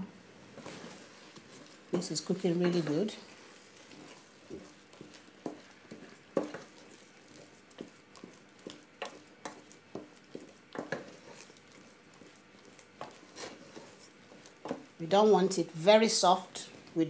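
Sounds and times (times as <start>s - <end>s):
wooden spoon stirring thick food: 0.4s - 17.0s.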